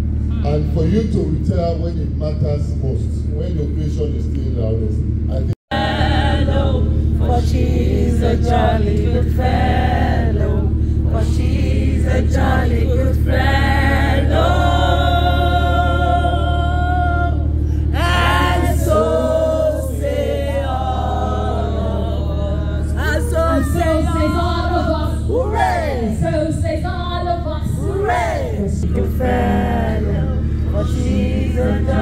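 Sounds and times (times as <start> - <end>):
steady low hum: 0.0 - 32.0
group of voices singing: 5.7 - 26.3, 27.6 - 32.0.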